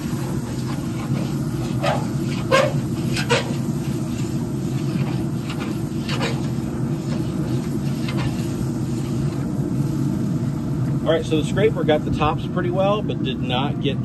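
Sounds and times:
brush scraping grill grates: 0:00.0 - 0:10.0
steam hissing: 0:00.0 - 0:13.0.

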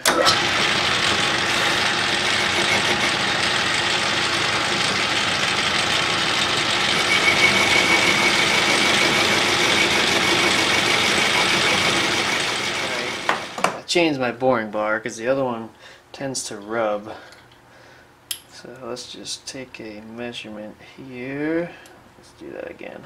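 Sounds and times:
metal lathe machining: 0:00.0 - 0:13.6.

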